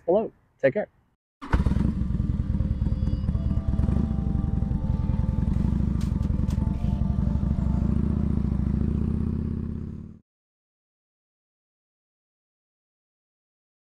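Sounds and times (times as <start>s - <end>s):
motorcycle engine rumbling: 1.4s - 10.2s.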